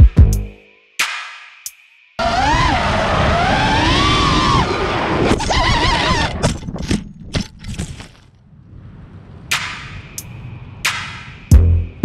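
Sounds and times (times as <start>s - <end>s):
drone motors whining: 2.2s - 6.6s
propellers striking brush: 9.5s - 11.8s.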